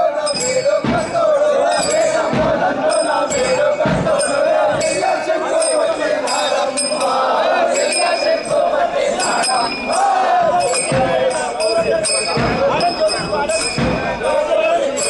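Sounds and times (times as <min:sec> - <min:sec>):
crowd noise: 0:00.0 - 0:15.0
metallic jingles or cymbal strikes: 0:00.0 - 0:15.0
low drum thumps: 0:00.6 - 0:05.1, 0:10.4 - 0:14.6.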